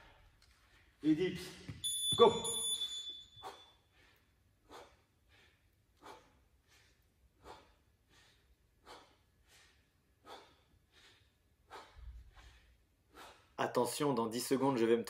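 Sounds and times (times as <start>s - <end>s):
man breathing hard: 3.4s - 13.6s.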